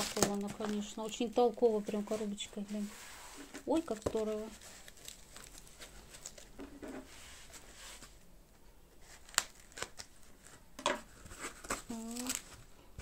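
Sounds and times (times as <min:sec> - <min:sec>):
foam packaging rustling: 0:00.0 - 0:08.2, 0:09.0 - 0:12.8.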